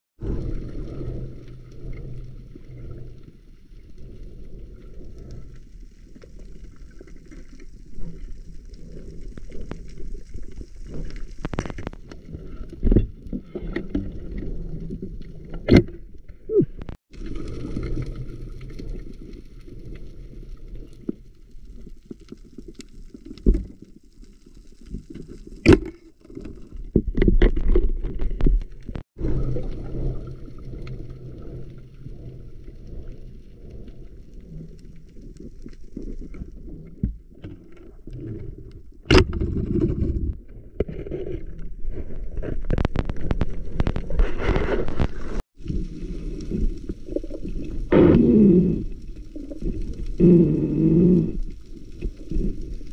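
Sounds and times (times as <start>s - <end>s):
underwater rush of water: 17.1s - 25.9s, 29.2s - 36.9s.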